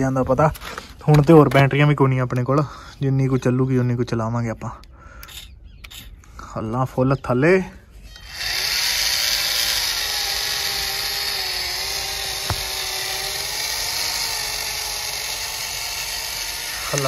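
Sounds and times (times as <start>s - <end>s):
small electric motor whining: 5.2s - 6.2s, 8.0s - 17.0s.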